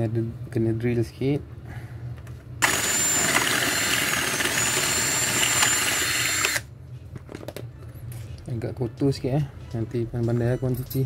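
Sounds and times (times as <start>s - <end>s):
power drill whining: 2.6s - 6.7s.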